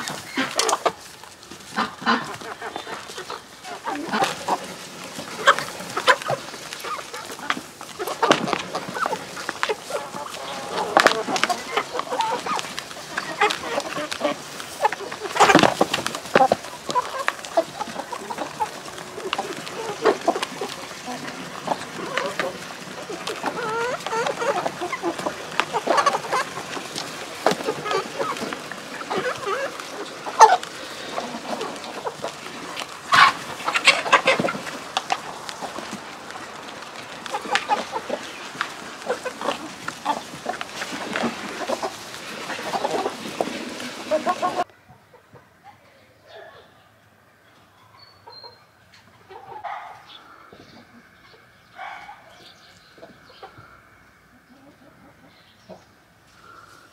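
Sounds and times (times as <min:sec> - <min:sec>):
chickens clucking: 0:00.0 - 0:56.9
beaks pecking in plastic basin: 0:01.6 - 0:44.7.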